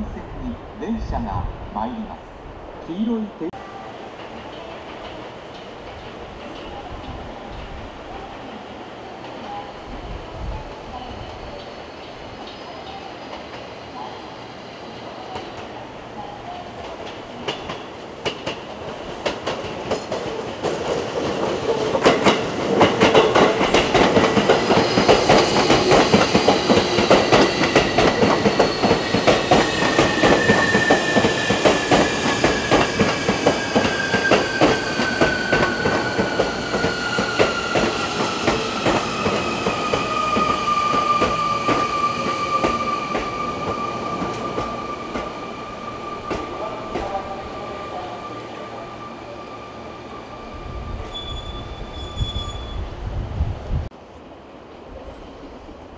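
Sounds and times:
train wheels clattering on rails: 4.1 - 8.4, 16.8 - 45.5, 46.1 - 47.2.

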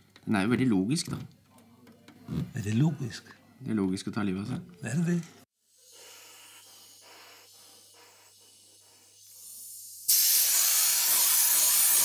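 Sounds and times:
gas hissing from cylinder valve: 5.6 - 12.0.

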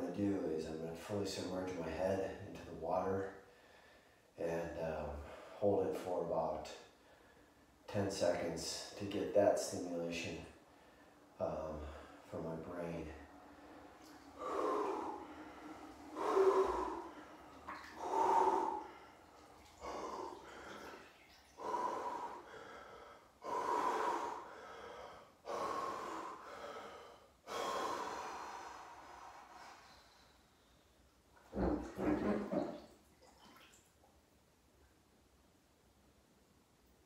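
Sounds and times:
man breathing heavily: 13.2 - 30.8.

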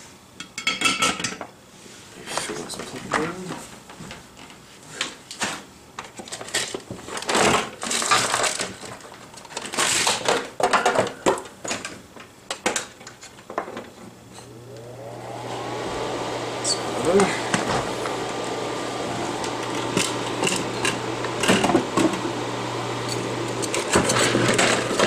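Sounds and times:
small motor whining: 14.4 - 24.3.

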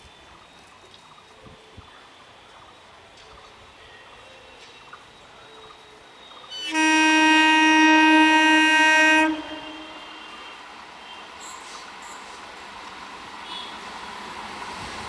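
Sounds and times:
train running noise: 1.3 - 15.0
train horn long blast: 6.5 - 11.3.

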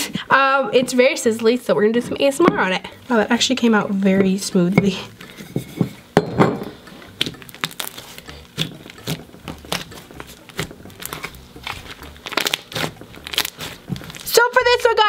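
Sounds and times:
slime crackling and popping: 6.7 - 15.0.

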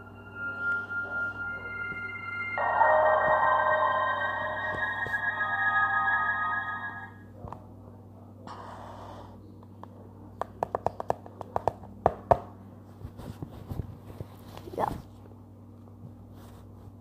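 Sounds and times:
faint steady hum: 0.0 - 10.6.

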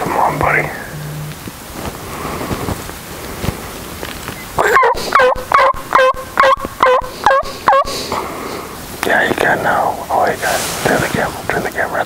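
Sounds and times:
turkey yelps: 4.6 - 8.0.

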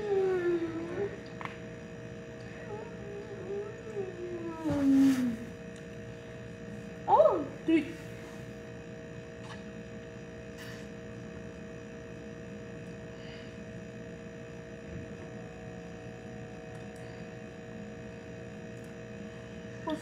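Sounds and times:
steady two-tone hum: 0.0 - 20.0.

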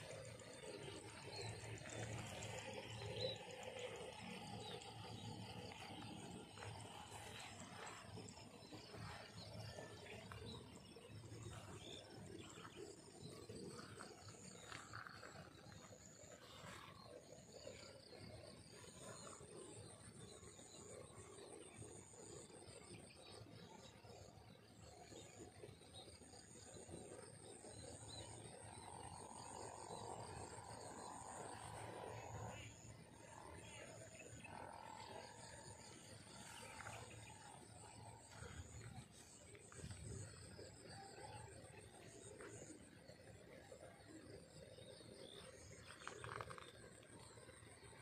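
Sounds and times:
low steady rumble: 0.0 - 23.8, 25.4 - 48.0
faint steady hum: 0.0 - 48.0.

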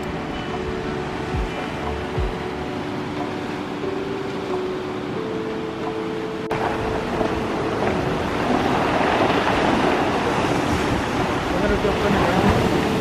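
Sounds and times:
soft sustained music notes: 0.0 - 12.8
surf washing over rocks: 0.0 - 13.0
wind on microphone: 6.1 - 13.0.

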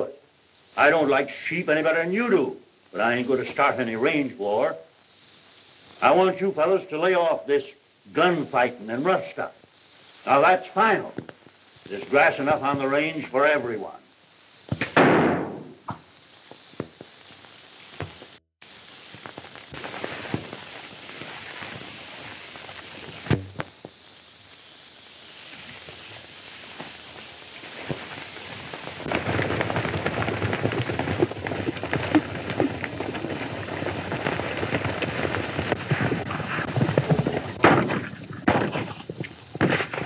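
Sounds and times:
film soundtrack hiss: 0.0 - 40.0
sharp crack: 14.7 - 16.1, 23.0 - 24.0, 27.6 - 40.0
film crackles: 16.1 - 40.0
galloping horses hooves: 25.4 - 40.0.

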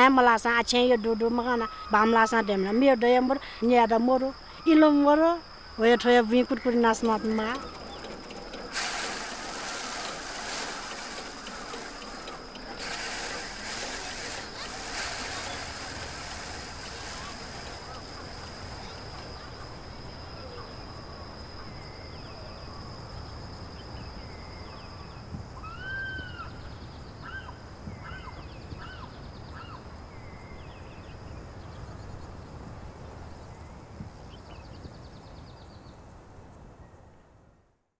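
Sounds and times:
short chirping calls: 5.8 - 22.8.

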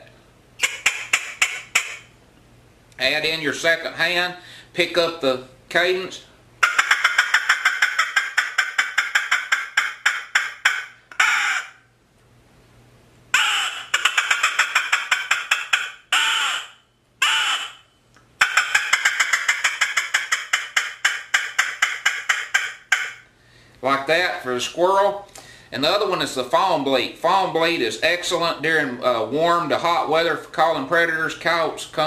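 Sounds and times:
squirrel call barking: 0.6 - 2.1, 6.6 - 11.9, 13.3 - 23.3.

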